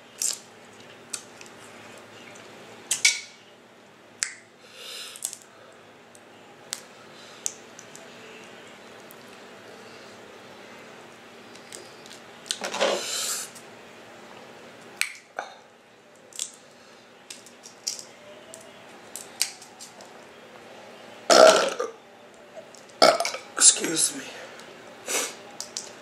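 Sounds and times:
person burping: 0:21.3 - 0:22.0, 0:23.0 - 0:23.4.

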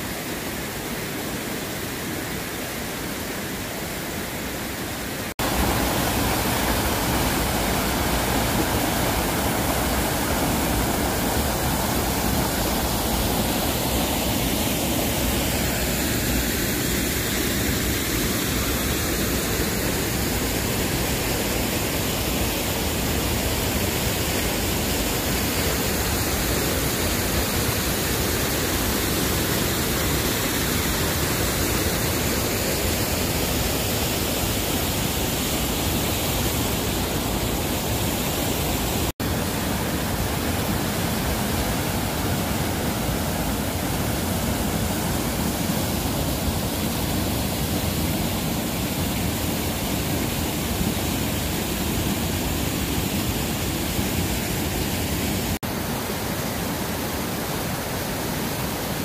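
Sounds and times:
waterfall rushing water: 0:00.0 - 0:59.0.

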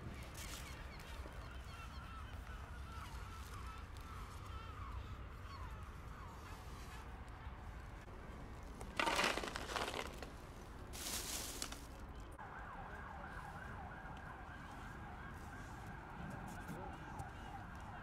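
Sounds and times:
dry kibble poured rattling: 0:09.0 - 0:10.3, 0:11.0 - 0:11.9
wavering siren: 0:12.4 - 0:18.0.

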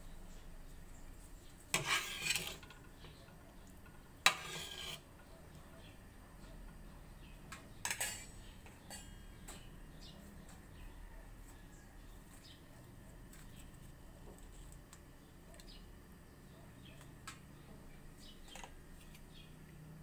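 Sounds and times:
metal tongs clinking in a pot: 0:07.8 - 0:09.3.

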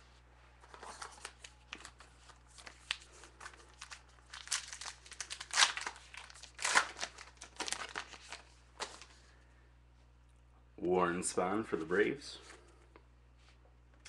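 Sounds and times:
card pack wrapper crinkling and tearing: 0:00.7 - 0:09.1.

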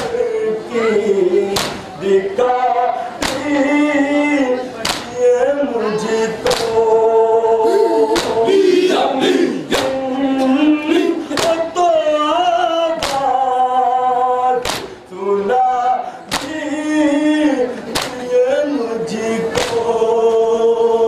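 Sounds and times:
men chanting in unison: 0:00.0 - 0:21.0.

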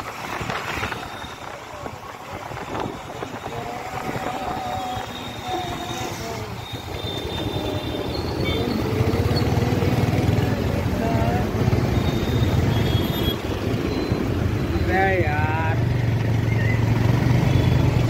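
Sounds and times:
road and wind noise: 0:00.0 - 0:18.0
surrounding traffic: 0:00.0 - 0:18.0.

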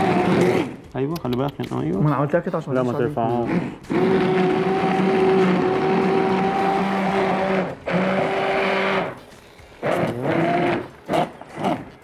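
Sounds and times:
immersion blender motor whine: 0:00.0 - 0:00.8, 0:03.4 - 0:09.2, 0:09.8 - 0:12.0.

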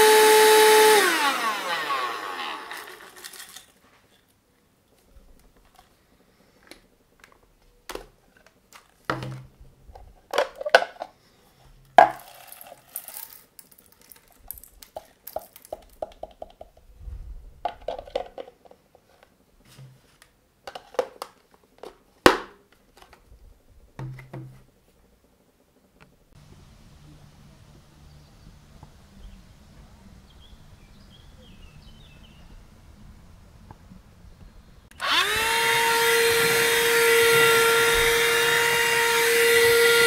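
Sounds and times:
plastic bits rattling onto wood: 0:02.7 - 0:04.2, 0:08.0 - 0:11.2, 0:12.0 - 0:16.7, 0:17.7 - 0:18.8
plastic clicks and knocks: 0:06.6 - 0:11.1, 0:14.8 - 0:16.9, 0:24.0 - 0:24.7.

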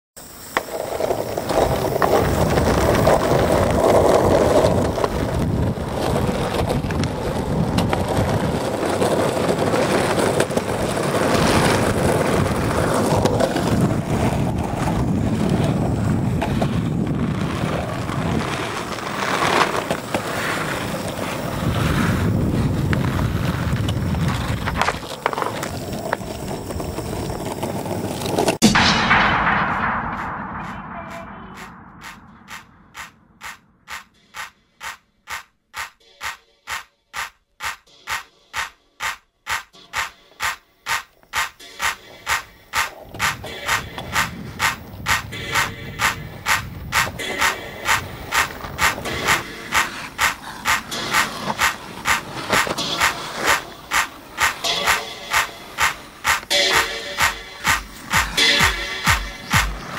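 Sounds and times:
skate wheels rolling over pavement: 0:00.2 - 0:28.6, 0:38.6 - 0:59.9
wind buffeting microphone: 0:01.7 - 0:09.7, 0:10.8 - 0:18.8.

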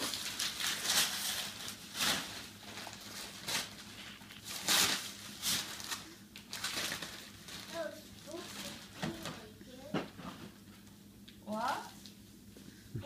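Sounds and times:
wrapping paper rustling: 0:00.0 - 0:09.5.

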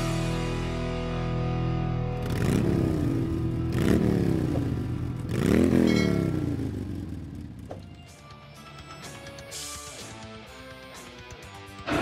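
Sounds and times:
motorcycle engine revving: 0:02.1 - 0:08.1.

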